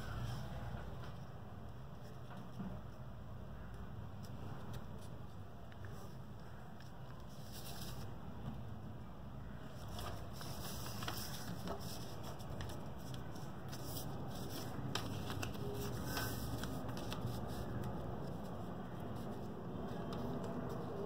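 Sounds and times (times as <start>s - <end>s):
paper rustling and crinkling: 5.8s - 8.2s, 9.6s - 21.0s.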